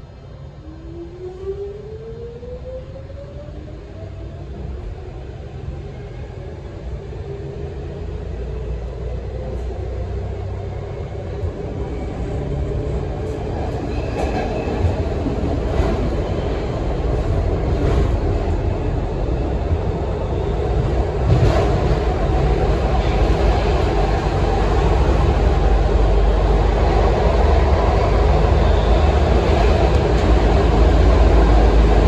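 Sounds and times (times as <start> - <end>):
wheel and track rumble: 9.0 - 32.0.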